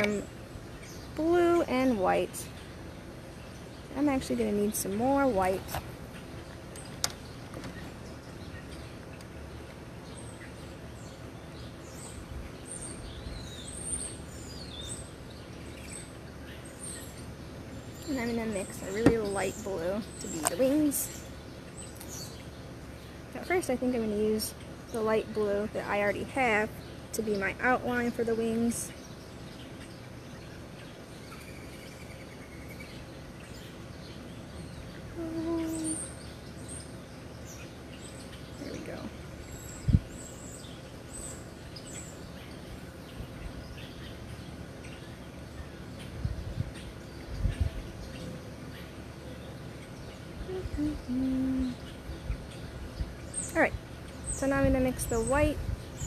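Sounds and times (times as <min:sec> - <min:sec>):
birds chirping: 0:00.0 - 0:56.0
low outdoor hum: 0:00.0 - 0:56.0.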